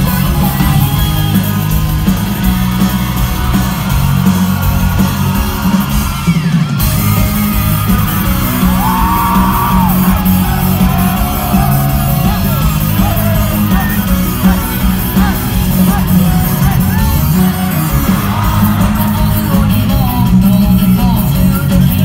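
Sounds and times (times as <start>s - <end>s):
fans yelling along: 0.0s - 21.4s
live electropop with synthesized singing: 8.8s - 22.0s.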